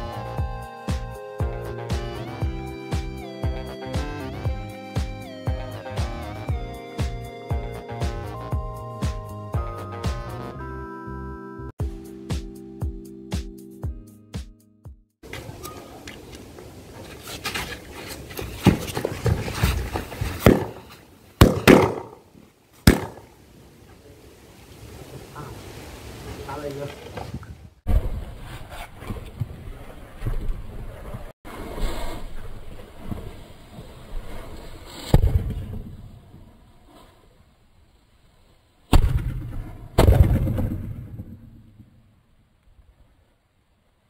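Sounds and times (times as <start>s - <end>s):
handling thuds and scuffing: 16.9s - 22.1s
firecracker bangs: 20.4s - 22.2s, 22.9s - 23.3s, 38.9s - 41.3s.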